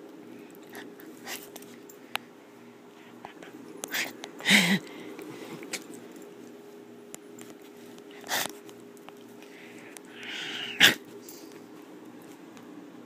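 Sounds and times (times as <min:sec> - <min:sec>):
puppy sniffing: 0:08.0 - 0:08.7.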